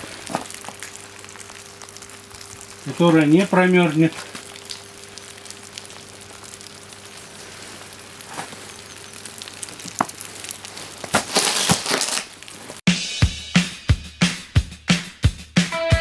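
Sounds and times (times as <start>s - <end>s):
soft crunching and rustling: 7.2s - 12.8s
guitar and drum music: 12.9s - 16.0s.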